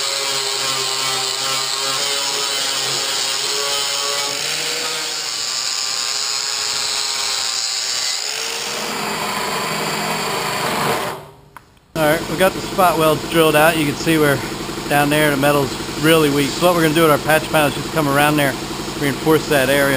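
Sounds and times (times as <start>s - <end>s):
angle grinder motor whine: 0.0s - 11.4s.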